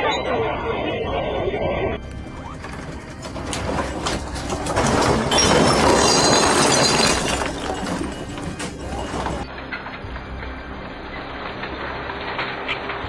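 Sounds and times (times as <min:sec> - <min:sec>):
objects clinking and clattering: 0:02.0 - 0:09.8
earthquake rattling rumble: 0:02.0 - 0:13.0.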